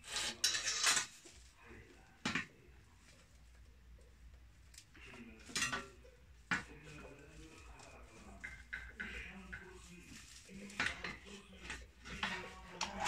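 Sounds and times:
straw rustling: 0:04.5 - 0:13.0.

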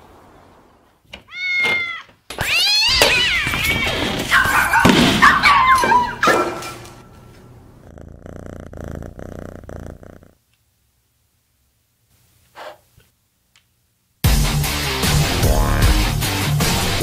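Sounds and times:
cat yowling: 0:01.3 - 0:06.4
cat purring: 0:07.4 - 0:10.4.

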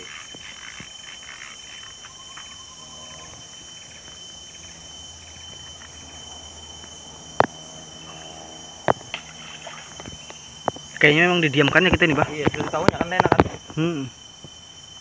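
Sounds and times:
insects chorus: 0:00.0 - 0:15.0.

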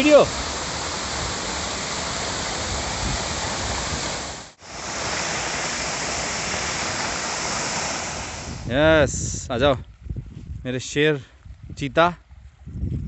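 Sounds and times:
waterfall rushing into pool: 0:00.0 - 0:08.8.

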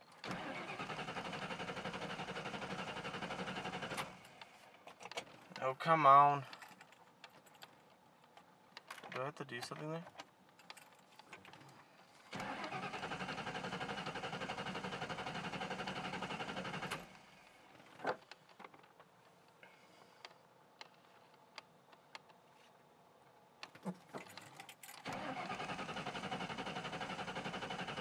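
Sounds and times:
starter cranking engine: 0:00.2 - 0:04.2, 0:12.3 - 0:17.1, 0:25.0 - 0:28.0.

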